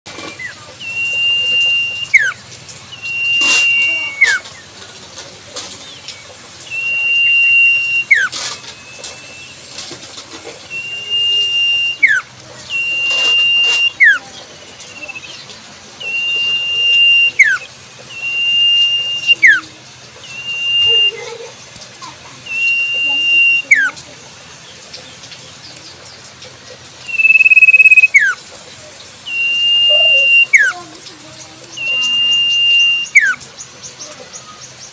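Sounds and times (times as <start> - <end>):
bird whistling song: 0.1 - 4.6, 6.6 - 9.7, 10.7 - 21.3, 22.4 - 24.0, 27.0 - 28.4, 29.2 - 30.8, 31.6 - 33.5.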